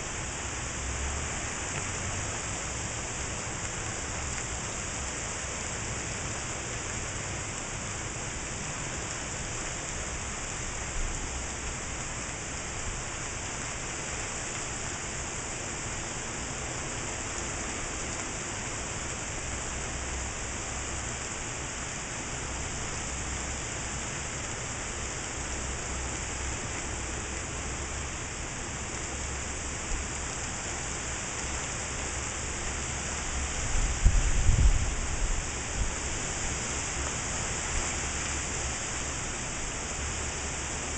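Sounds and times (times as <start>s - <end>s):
heavy rain pouring: 0.0s - 40.9s
wind rumbling on microphone: 33.6s - 37.0s.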